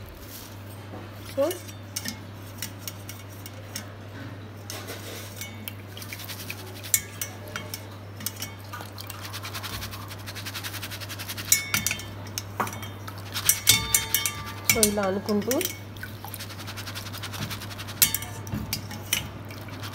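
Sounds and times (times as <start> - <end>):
mesh strainer clinking against bowl: 4.7 - 19.9.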